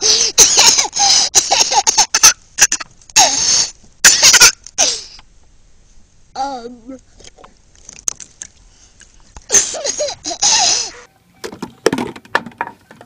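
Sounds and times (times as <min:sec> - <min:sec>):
toddler laughing: 0:09.5 - 0:11.1.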